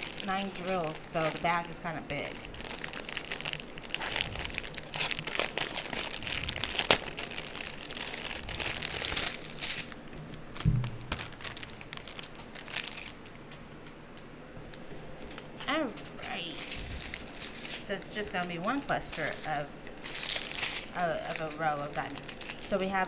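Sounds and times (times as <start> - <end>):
plastic bag crinkling: 0.0 - 23.0
dull thud: 10.6 - 11.3.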